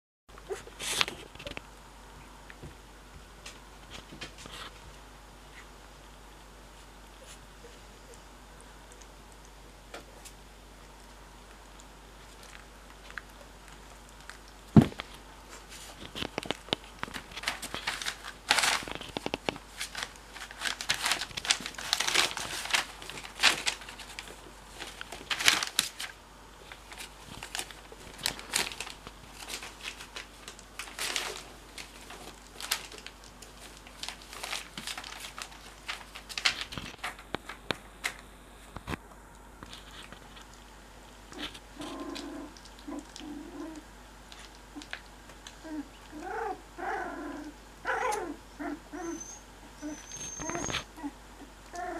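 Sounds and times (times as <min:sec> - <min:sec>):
newspaper crinkling and rustling: 0:14.7 - 0:39.0
puppy whimpers: 0:45.6 - 0:51.9.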